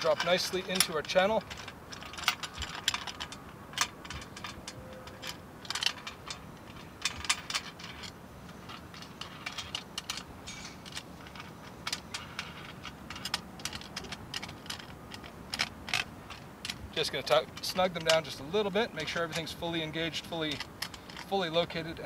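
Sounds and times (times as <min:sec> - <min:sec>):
metallic clicks and taps on rail: 0:00.0 - 0:22.0.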